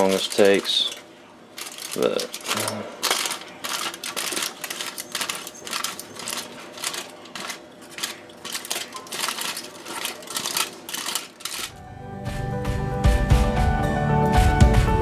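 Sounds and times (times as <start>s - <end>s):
aluminium foil crinkling: 0.0s - 11.8s.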